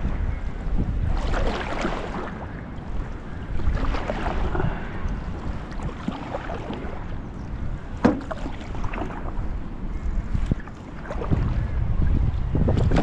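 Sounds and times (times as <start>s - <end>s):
wind on microphone: 0.0s - 13.0s
paddle splashing in water: 1.0s - 2.6s, 3.5s - 4.8s, 5.7s - 7.1s, 8.0s - 9.4s, 10.0s - 11.6s.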